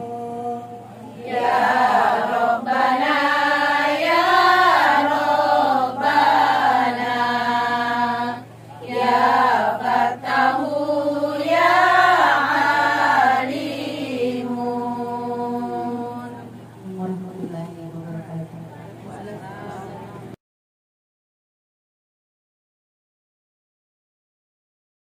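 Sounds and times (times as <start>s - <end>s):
women singing in unison: 0.0s - 20.0s.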